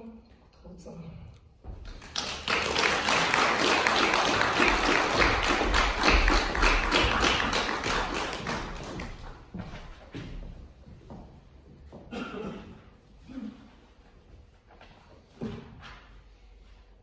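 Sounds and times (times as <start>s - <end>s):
audience applauding: 1.8s - 9.5s.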